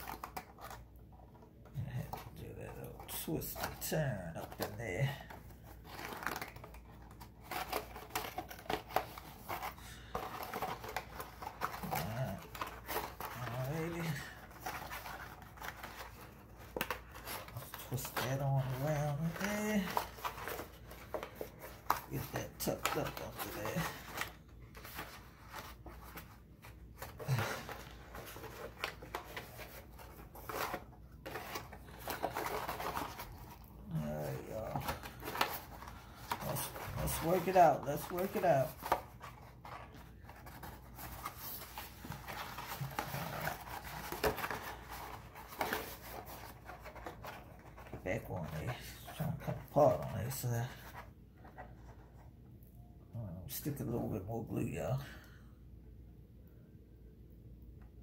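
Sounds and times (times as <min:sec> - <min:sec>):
stiff paper rustling: 0:00.0 - 0:52.3.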